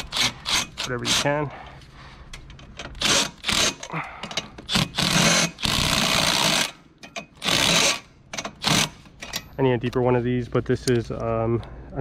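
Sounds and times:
impact driver hammering: 2.8 - 9.4.

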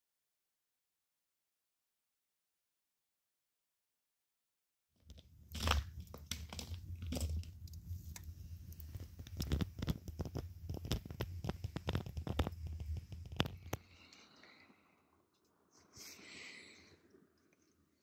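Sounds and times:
campfire crackling and popping: 5.0 - 14.2.

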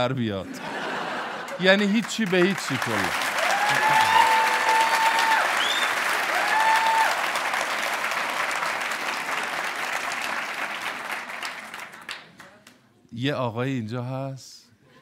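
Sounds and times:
theatre audience applauding: 0.8 - 12.7.

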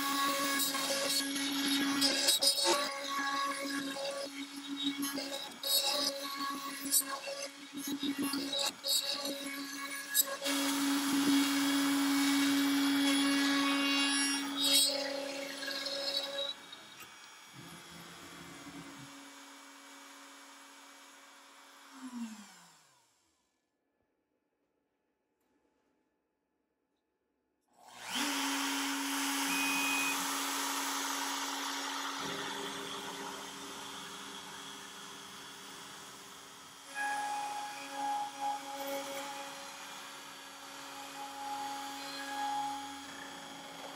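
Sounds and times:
router whining while carving wood: 0.0 - 23.4, 27.8 - 43.9.

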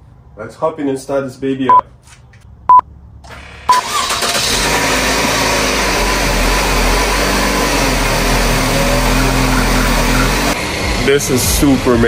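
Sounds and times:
car engine starting and idling: 3.2 - 12.0.

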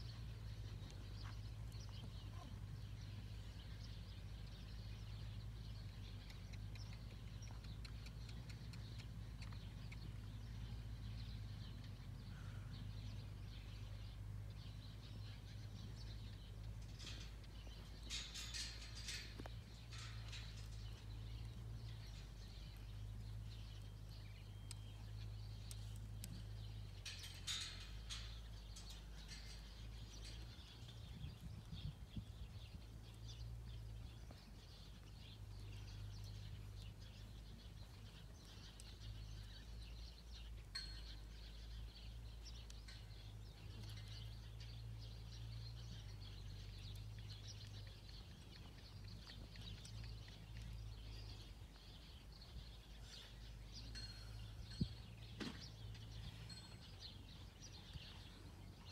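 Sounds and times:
low steady rumble: 0.0 - 58.9
small birds chirping: 0.0 - 58.9.

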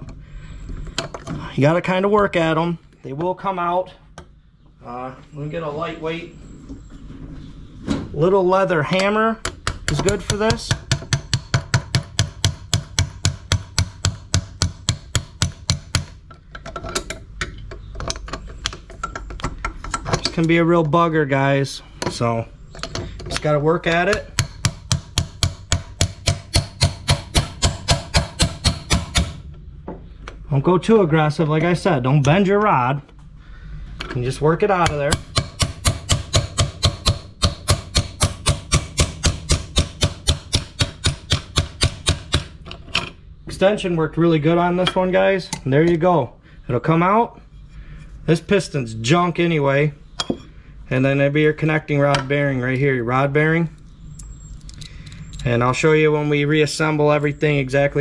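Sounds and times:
hammer tapping on metal: 9.0 - 16.2, 23.9 - 29.4, 34.8 - 42.5.

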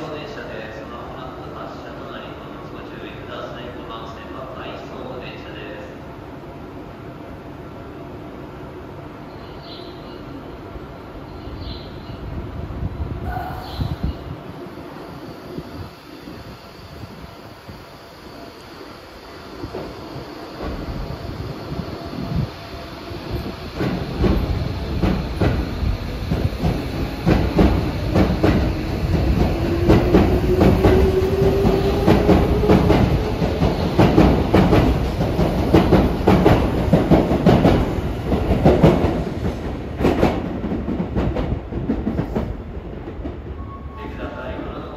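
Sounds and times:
train rumble: 9.0 - 44.9.

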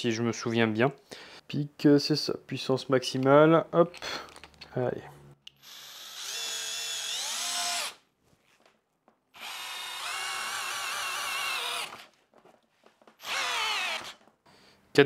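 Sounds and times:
drill motor whining under load: 5.6 - 8.0, 9.4 - 12.1, 13.2 - 14.2.

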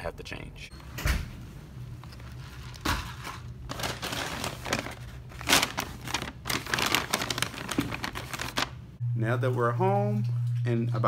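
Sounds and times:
paper bag crinkling: 2.0 - 8.8.

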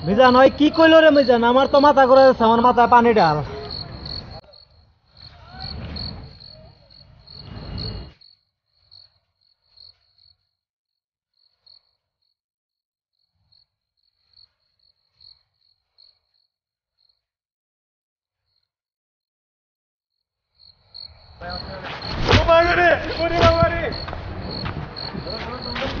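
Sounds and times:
crickets chirping: 0.0 - 10.6, 11.4 - 12.4, 13.2 - 17.3, 18.4 - 18.7, 20.5 - 26.0
rustles and thumps of scuffle: 21.7 - 26.0.

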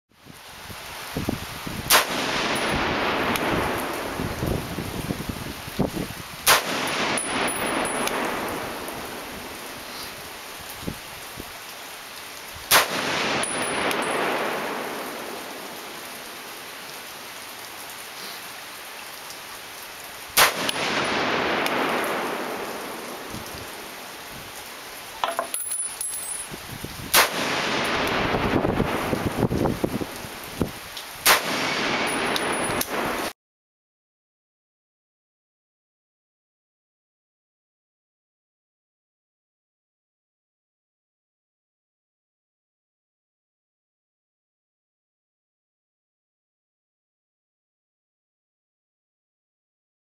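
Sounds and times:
rifle shots with rolling echo: 1.9 - 4.1, 6.5 - 9.3, 12.7 - 15.7, 20.4 - 23.2, 27.1 - 28.3, 31.2 - 33.3.

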